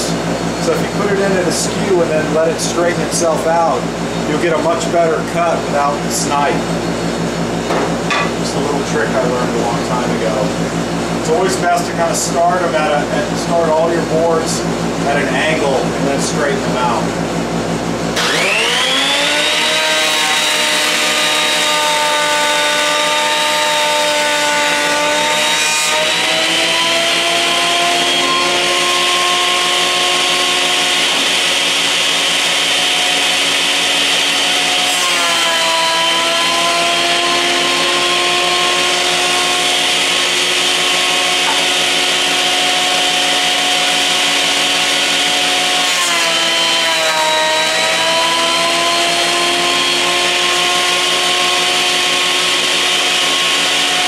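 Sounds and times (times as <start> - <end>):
thickness planer cutting boards: 18.1 - 54.0.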